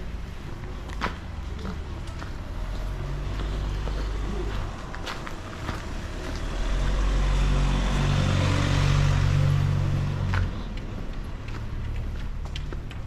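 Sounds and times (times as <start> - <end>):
car driving past: 5.6 - 11.4.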